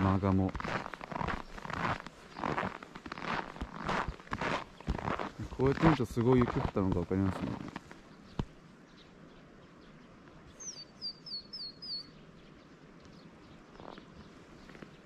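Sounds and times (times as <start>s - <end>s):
small bird chirping: 0.4s - 3.5s, 7.5s - 15.0s.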